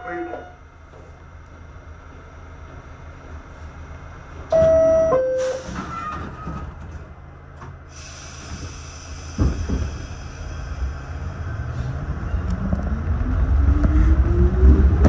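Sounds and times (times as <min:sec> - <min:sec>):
subway car rumble: 0:00.0 - 0:15.0
hiss: 0:07.9 - 0:11.4.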